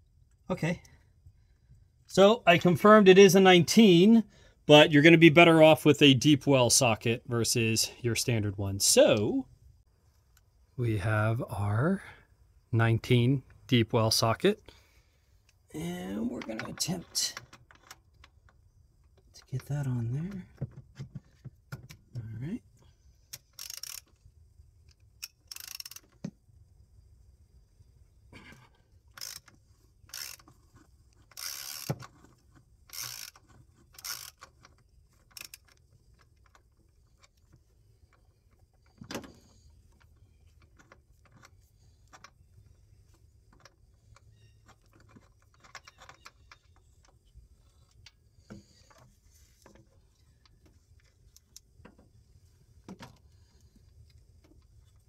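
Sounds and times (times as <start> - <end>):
socket ratchet clicking: 23.3 - 24.2, 24.9 - 26.2, 29.1 - 30.6, 31.2 - 32.1, 32.8 - 37.3.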